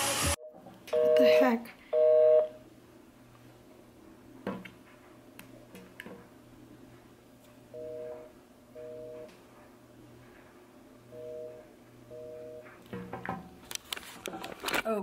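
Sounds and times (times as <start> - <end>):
telephone busy signal beeps: 2.0 - 2.5, 11.2 - 12.7.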